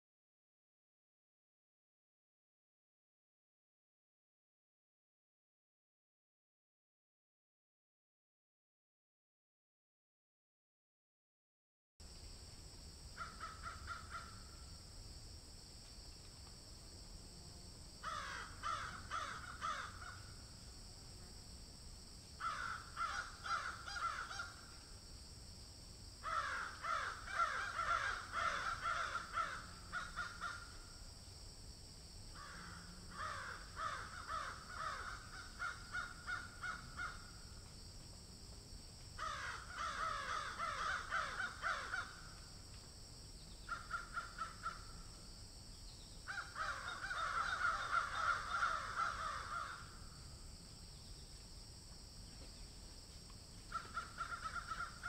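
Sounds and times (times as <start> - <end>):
steady high-pitched hiss: 12.0 - 55.0
birds cawing: 13.2 - 14.6, 18.0 - 20.3, 22.4 - 24.6, 26.2 - 30.8, 32.4 - 37.4, 39.2 - 42.3, 43.7 - 44.9, 46.3 - 50.0, 53.7 - 55.0.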